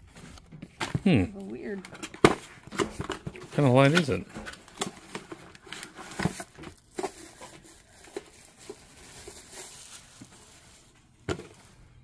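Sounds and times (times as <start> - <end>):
packaging rustling and crinkling: 0.0 - 12.0.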